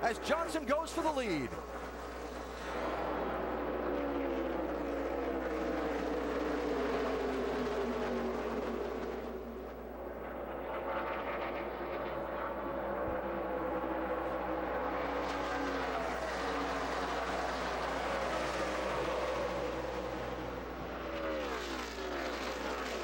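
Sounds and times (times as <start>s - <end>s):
race car engines passing: 0.0s - 23.0s.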